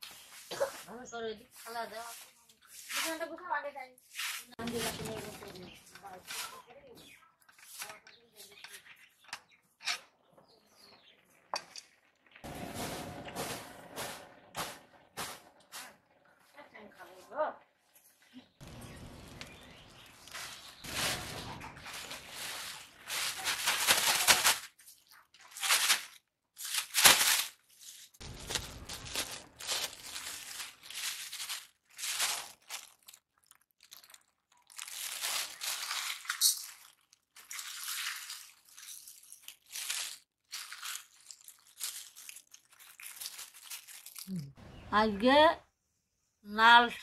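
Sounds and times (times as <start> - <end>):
plastic bag crinkling: 4.6 - 6.7, 18.6 - 44.6
lentils pouring into steel bowl: 28.2 - 32.9.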